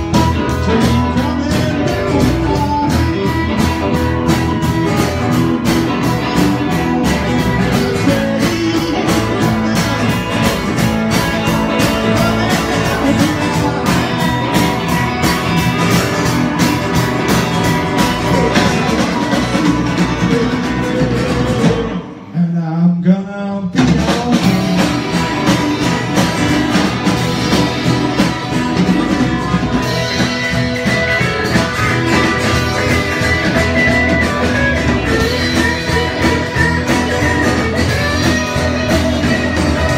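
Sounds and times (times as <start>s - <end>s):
electric guitar bending note: 0.0s - 22.3s
live blues-rock band: 0.0s - 39.9s.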